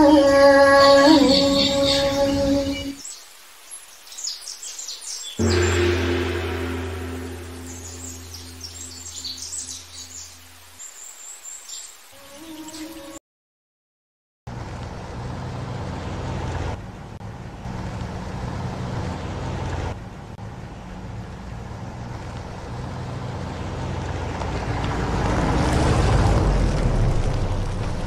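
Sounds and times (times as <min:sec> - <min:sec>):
road and wind noise: 0:14.5 - 0:28.0
truck engine hum: 0:14.5 - 0:28.0.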